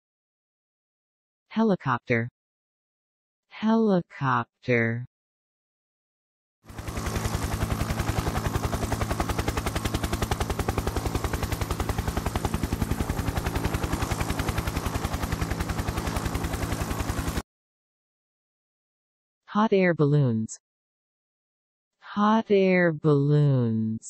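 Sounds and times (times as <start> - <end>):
helicopter rotor blades beating: 6.6 - 17.4.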